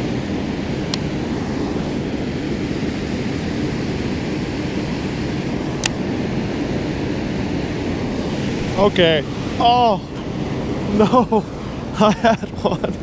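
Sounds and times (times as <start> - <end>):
water rushing through spillway: 8.0 - 12.6.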